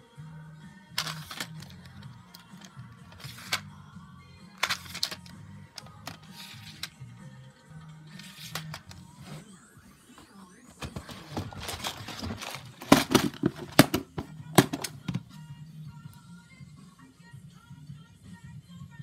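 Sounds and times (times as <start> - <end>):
background music: 0.0 - 19.0
plastic drawers clacking: 1.0 - 3.6, 4.6 - 6.9, 8.2 - 9.5, 10.7 - 15.3.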